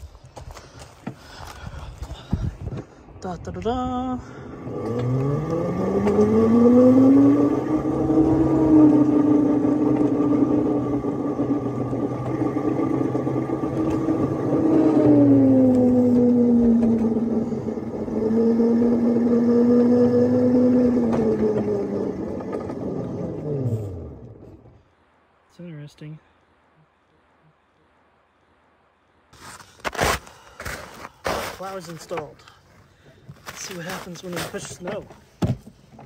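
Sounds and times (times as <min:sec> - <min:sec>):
miniature locomotive drive whining: 0:04.5 - 0:24.7.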